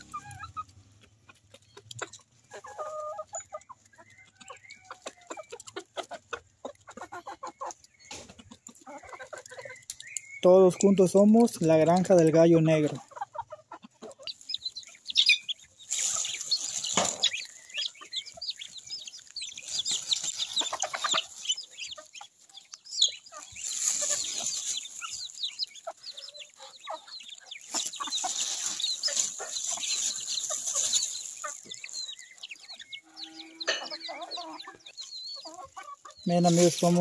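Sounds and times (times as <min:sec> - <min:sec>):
chickens clucking: 0:00.0 - 0:37.0
chicks peeping: 0:00.0 - 0:37.0
rustling: 0:14.3 - 0:33.0.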